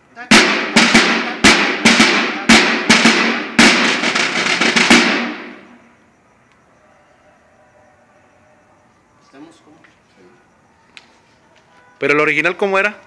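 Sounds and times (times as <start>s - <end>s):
snare drum strokes: 0.3s - 5.8s.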